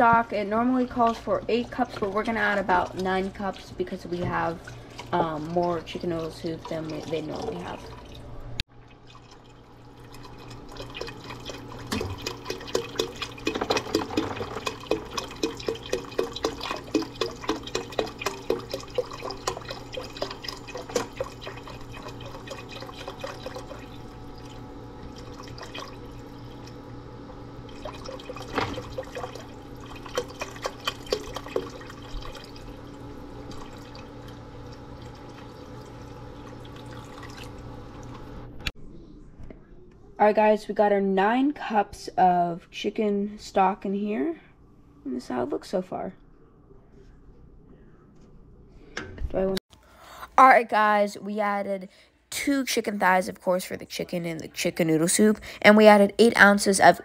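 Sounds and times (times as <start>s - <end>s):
stock glugging into a pot: 8.9s - 26.8s.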